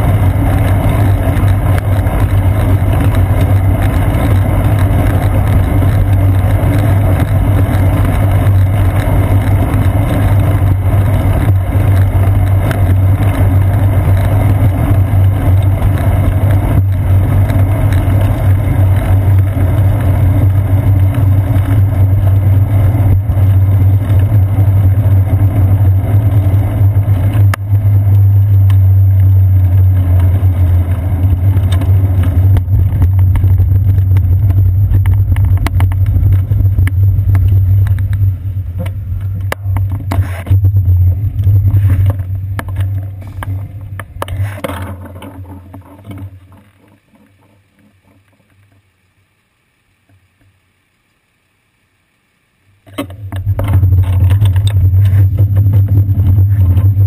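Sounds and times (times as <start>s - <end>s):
bicycle clicks: 0.0s - 40.6s
wind and road rumble: 0.0s - 49.0s, 52.8s - 57.0s.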